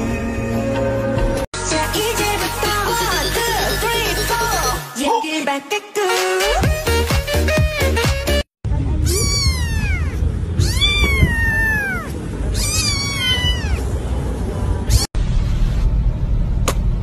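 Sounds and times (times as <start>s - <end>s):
kitten meowing: 9.0s - 13.9s
steady low rumble: 13.9s - 17.0s.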